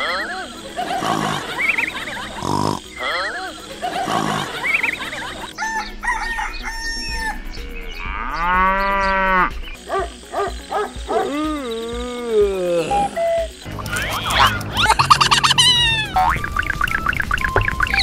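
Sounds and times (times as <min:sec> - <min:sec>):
rooster crowing: 0:05.5 - 0:07.4
rooster clucking: 0:13.7 - 0:16.8.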